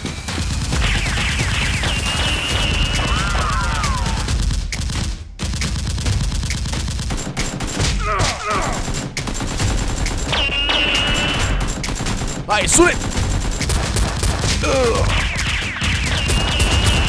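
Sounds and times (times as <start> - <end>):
rapid automatic gunfire: 0.0 - 17.0.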